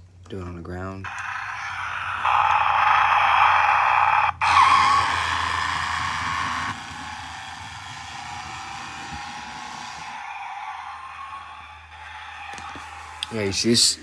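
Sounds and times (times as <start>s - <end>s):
toy car motor whirring: 1.1s - 13.7s.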